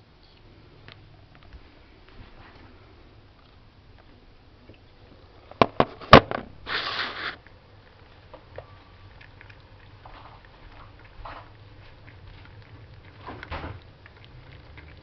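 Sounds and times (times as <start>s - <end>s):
camera knocking on counter: 5.6s - 6.4s
cat lapping milk: 7.1s - 15.0s.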